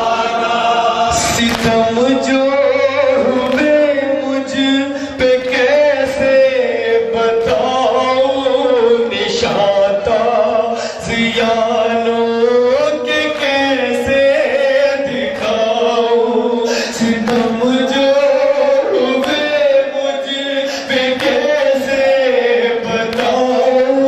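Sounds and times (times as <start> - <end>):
men chanting a mourning lament: 0.0 - 24.0.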